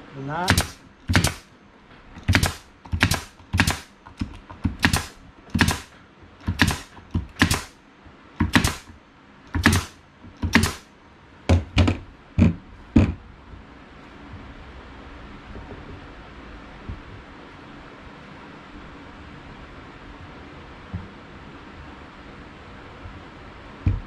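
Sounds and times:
nail gun firing into wood: 0.5s - 1.5s, 2.2s - 3.9s, 4.6s - 7.8s, 8.4s - 8.9s, 9.5s - 10.9s.

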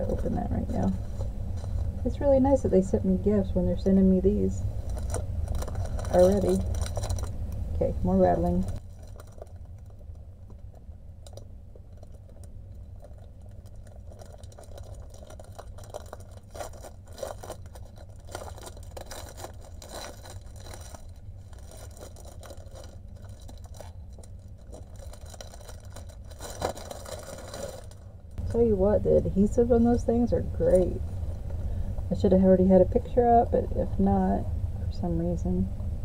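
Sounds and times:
steady low hum: 0.0s - 36.0s
plastic packaging crinkling: 4.7s - 28.6s.

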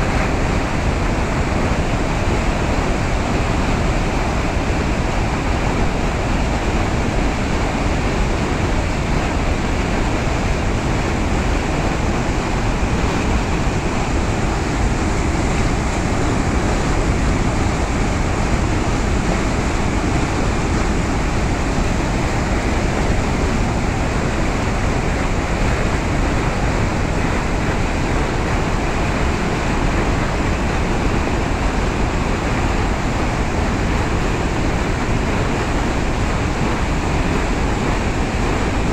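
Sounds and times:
water rushing over a spillway: 0.0s - 38.9s.

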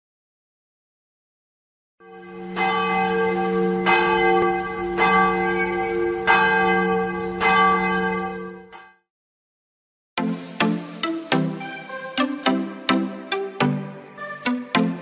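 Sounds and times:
large bell tolling: 2.1s - 8.8s.

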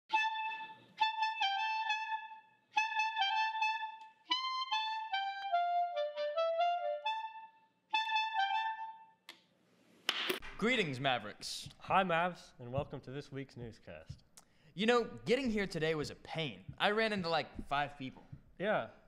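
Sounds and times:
solo clarinet melody: 0.1s - 9.3s.

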